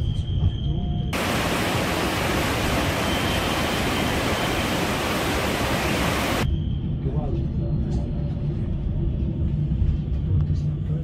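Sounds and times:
waterfall roaring: 1.2s - 6.4s.

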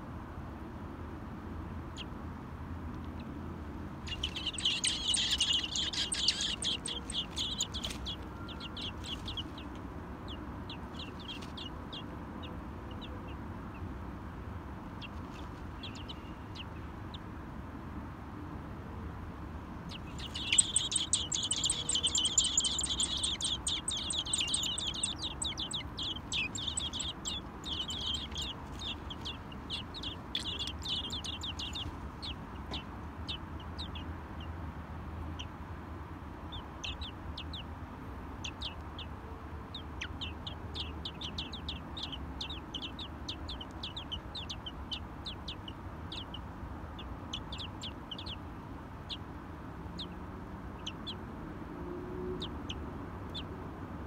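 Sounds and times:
nestlings cheeping: 4.1s - 9.7s, 19.9s - 32.6s.

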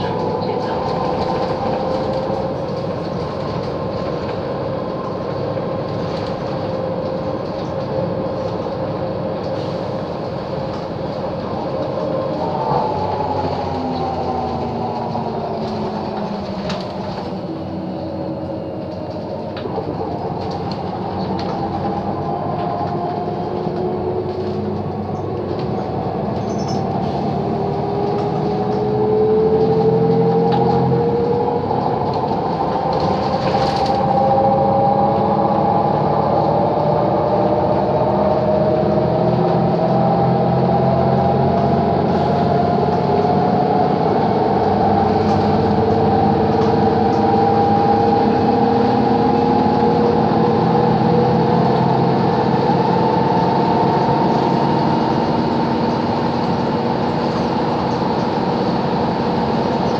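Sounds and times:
bus body rattles: 0.0s - 28.8s, 29.6s - 34.3s
bus engine and drivetrain whine: 0.0s - 59.9s.

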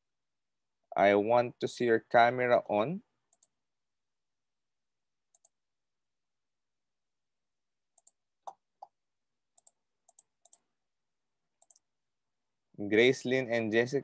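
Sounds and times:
computer mouse clicks: 3.3s - 3.6s, 5.3s - 5.6s, 8.0s - 9.0s, 9.6s - 10.6s, 11.6s - 11.9s.

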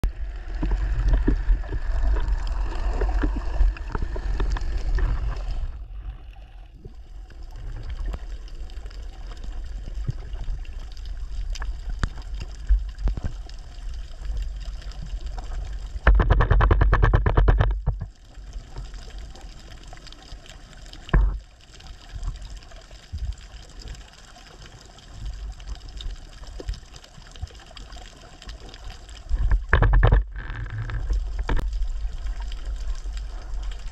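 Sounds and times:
underwater rumble: 0.0s - 33.9s
small clicks: 14.4s - 18.9s, 25.9s - 33.2s
rattling burst of rapid clicks: 16.1s - 17.9s.

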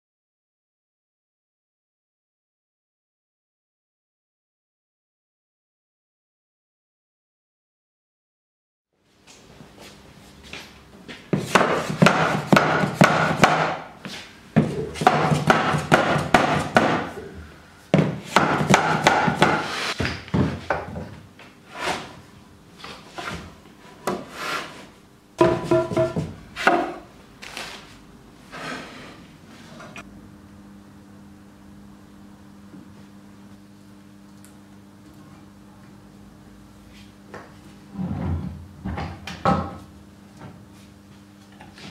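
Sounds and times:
mallet knocking wood: 11.6s - 13.8s, 15.0s - 17.1s, 18.0s - 19.6s, 25.4s - 27.0s
wood-on-wood scraping: 22.8s - 30.0s.

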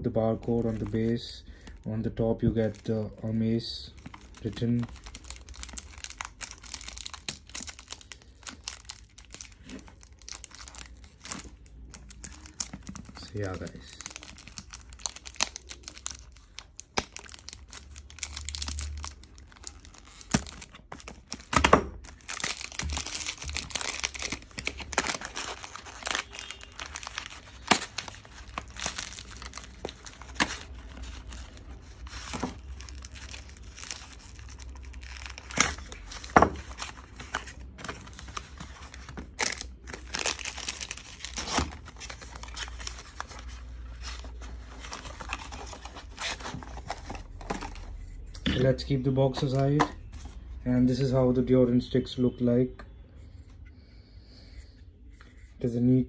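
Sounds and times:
cellophane tearing and crinkling: 2.6s - 48.3s.

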